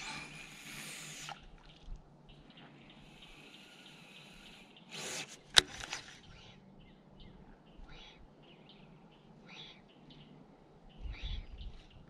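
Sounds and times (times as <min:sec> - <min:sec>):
reel clicks: 0:05.1 - 0:06.2.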